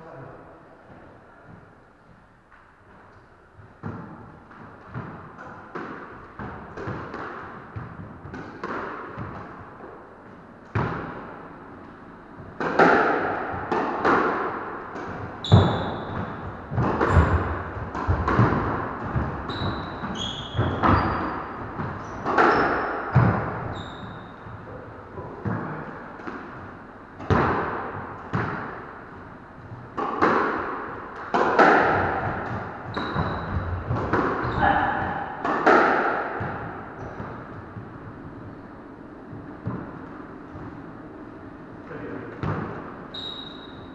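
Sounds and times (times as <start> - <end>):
squash ball hit by rackets: 3.6 - 9.9, 10.7 - 40.9, 42.2 - 43.9
shoes squeaking on wooden floor: 15.4 - 18.2, 19.2 - 22.9, 23.7 - 24.4, 32.8 - 34.9, 43.1 - 43.9
ball smacking off walls: 30.0 - 37.3.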